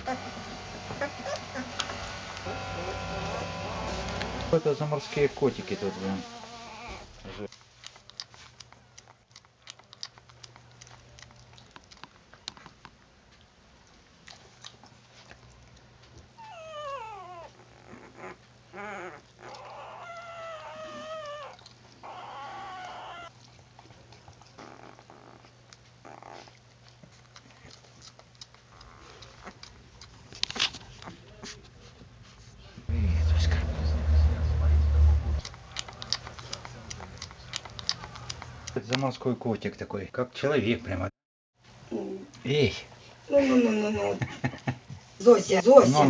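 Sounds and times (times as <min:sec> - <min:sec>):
puppies whimpering and whining: 0:00.0 - 0:07.3, 0:16.3 - 0:23.4.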